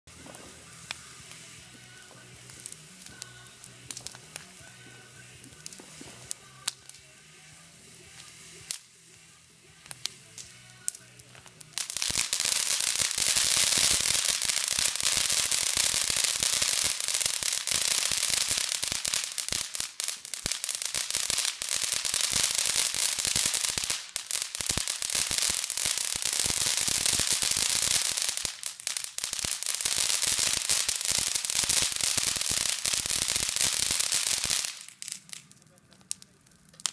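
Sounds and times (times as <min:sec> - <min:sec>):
firework pops: 0:00.1 - 0:07.0, 0:30.1 - 0:36.9
firework fountain crackling hiss: 0:00.1 - 0:36.9.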